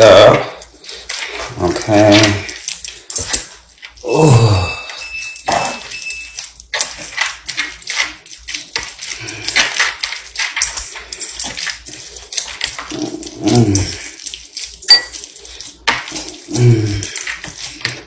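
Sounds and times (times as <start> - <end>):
hands squelching meat mixture: 0.0 - 18.0.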